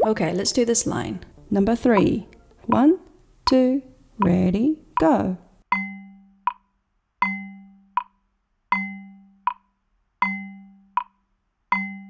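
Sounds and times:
metronome ringing tone: 1.8s - 4.4s, 5.7s - 6.6s, 7.2s - 9.6s, 10.2s - 12.0s
metronome dry tick: 1.8s - 5.2s, 5.8s - 12.0s.

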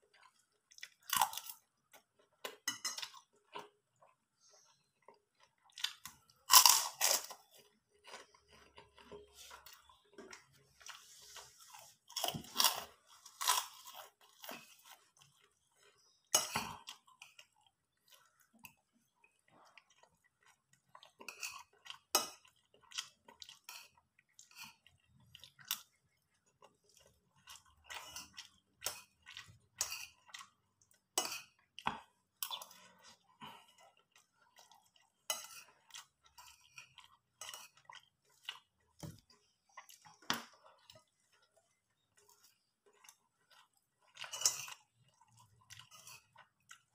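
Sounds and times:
person chewing and crunching food: 0.0s - 46.9s.

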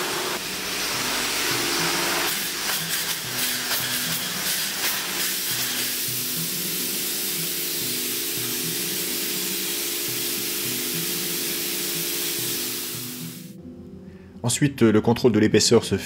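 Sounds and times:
spray foam gun hissing: 0.0s - 13.6s
background music: 5.8s - 16.0s.

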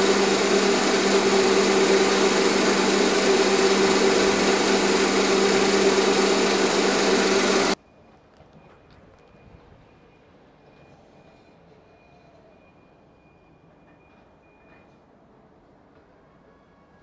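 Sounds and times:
vibrating sieve buzzing hum: 0.0s - 7.8s.

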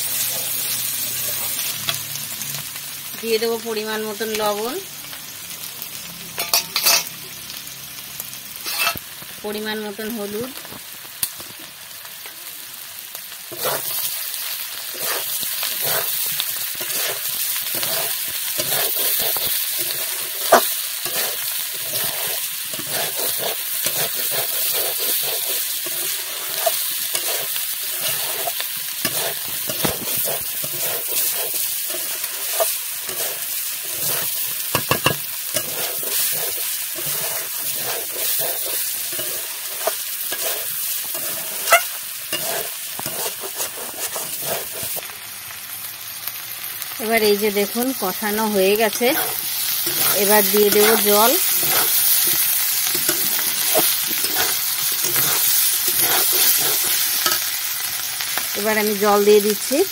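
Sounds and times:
food sizzling in a pan: 0.0s - 59.9s
metal spatula scraping a pan: 6.4s - 7.1s, 8.6s - 9.0s, 13.5s - 14.1s, 14.9s - 45.0s, 48.8s - 57.6s.

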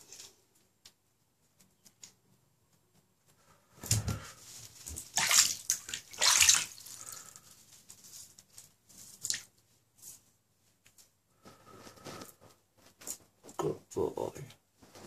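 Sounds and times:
bath water splashing: 3.8s - 7.4s, 9.1s - 9.5s.

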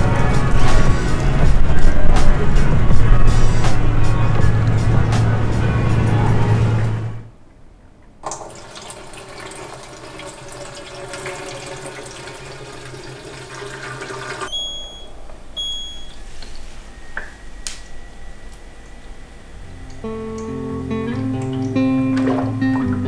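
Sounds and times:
water pouring and gurgling: 8.2s - 14.5s, 21.4s - 23.0s
short high beeps: 14.5s - 16.2s
faint steady high tone: 14.5s - 20.8s.

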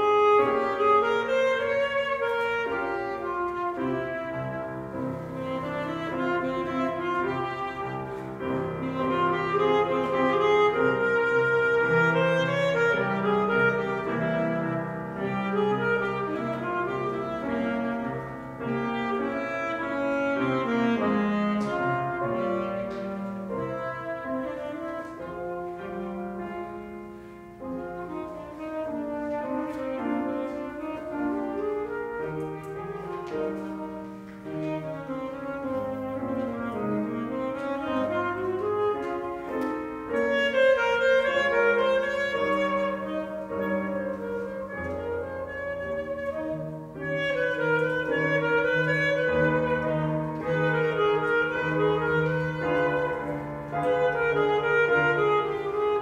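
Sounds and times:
piano accompaniment: 0.0s - 56.0s
saxophone melody: 0.0s - 56.0s.

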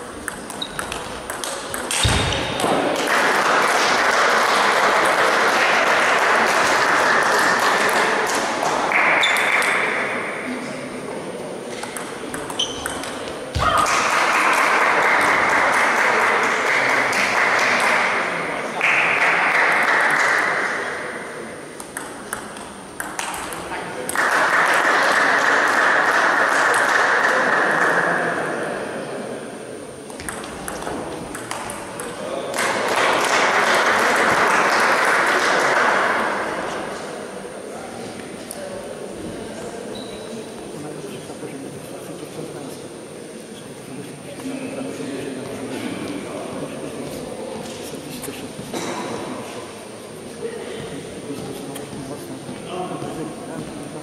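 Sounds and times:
table tennis ball clicking: 0.2s - 2.8s, 11.8s - 13.4s, 21.8s - 24.3s, 30.1s - 32.2s
thud: 2.0s - 2.8s
applause and cheering: 3.0s - 8.0s, 13.8s - 18.1s.

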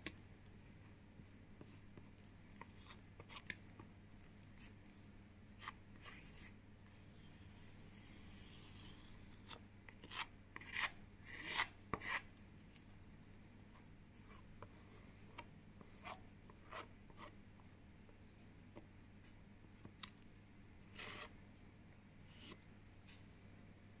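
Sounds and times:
card scraping paint on canvas: 1.6s - 12.3s, 20.9s - 21.4s.

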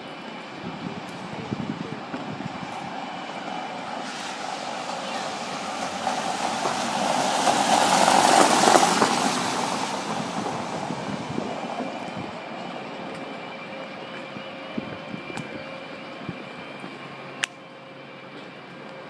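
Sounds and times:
vehicle passing on wet street: 2.8s - 12.5s.

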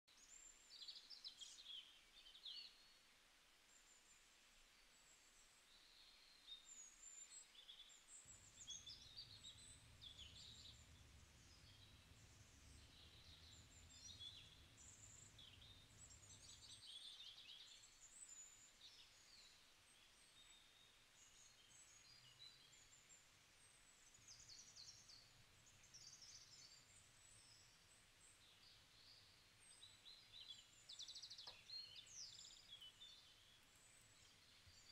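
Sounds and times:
small birds chirping: 0.1s - 34.9s
low steady hum: 7.9s - 17.0s.

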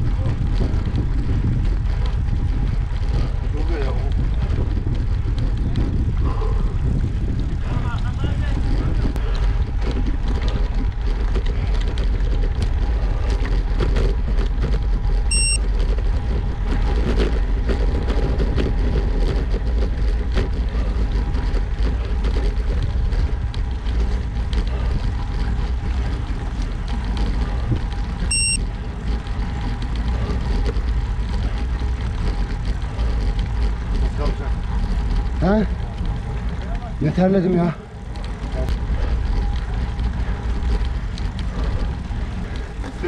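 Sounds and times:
bicycle road noise rumble: 0.0s - 43.0s
wind rushing over microphone: 0.0s - 43.0s
short high beeps: 15.3s - 15.6s, 28.3s - 28.6s.

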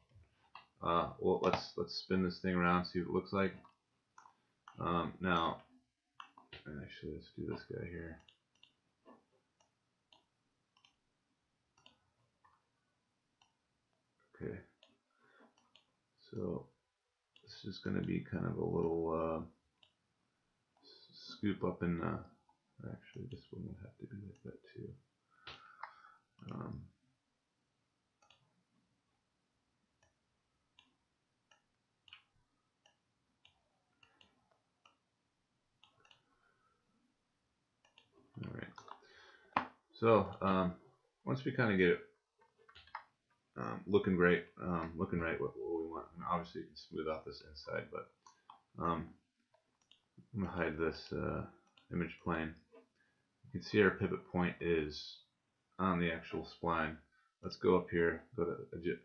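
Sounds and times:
faint mouse clicks: 7.5s - 8.8s, 9.6s - 11.0s, 11.8s - 12.6s, 14.8s - 15.9s, 25.4s - 26.8s, 28.2s - 28.5s, 30.8s - 35.0s, 35.8s - 36.5s
computer mouse clicks: 9.6s - 11.0s, 28.2s - 28.5s.

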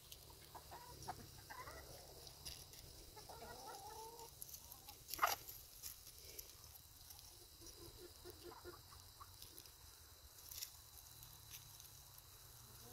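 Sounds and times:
chickens clucking: 0.0s - 9.8s, 12.7s - 12.9s.

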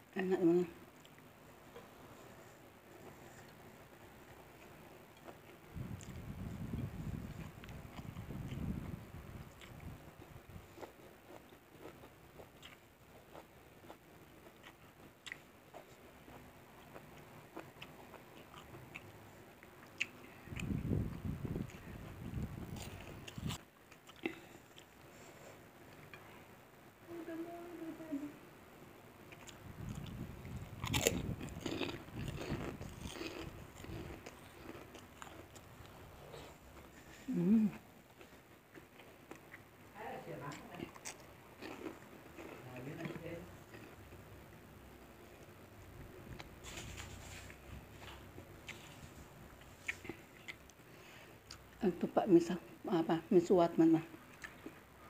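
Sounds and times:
person chewing: 3.0s - 26.3s, 29.3s - 39.7s, 40.9s - 44.2s, 46.3s - 51.8s, 54.1s - 54.8s.

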